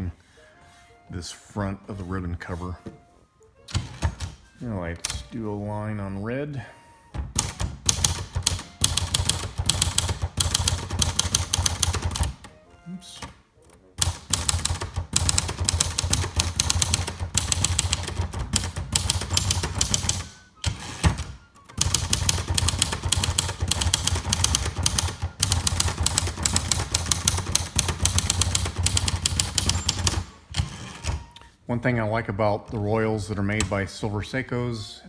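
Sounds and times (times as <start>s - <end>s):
manual typewriter typing: 3.7s - 4.4s, 7.3s - 12.5s, 14.0s - 31.4s.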